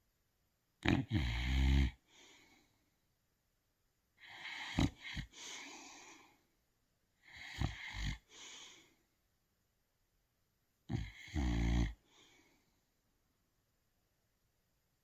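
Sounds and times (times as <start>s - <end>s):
dog snoring: 0.8s - 2.1s, 4.2s - 6.1s, 7.2s - 8.7s, 10.9s - 12.3s
dog snorting: 4.2s - 6.0s, 7.3s - 8.6s.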